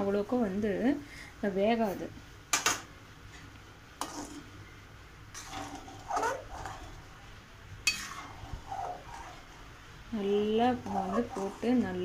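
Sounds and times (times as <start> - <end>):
spatula stirring in a pan: 3.3 - 12.0.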